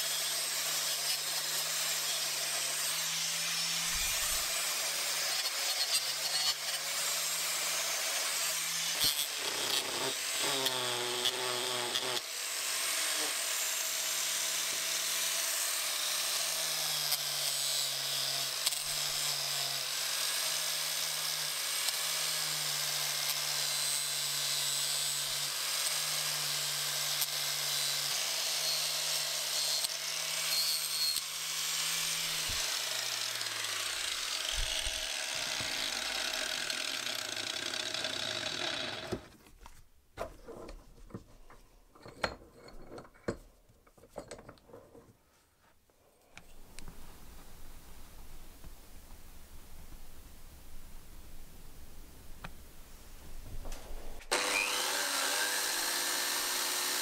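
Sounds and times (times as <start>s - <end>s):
angle grinder polishing metal: 0.0s - 39.3s, 54.3s - 57.0s.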